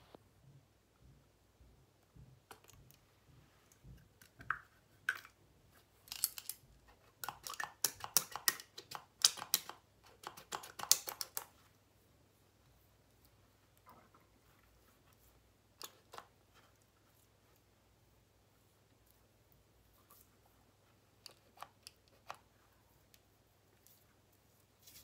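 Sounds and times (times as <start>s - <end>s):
plastic jar clicking and tapping: 7.2s - 11.5s.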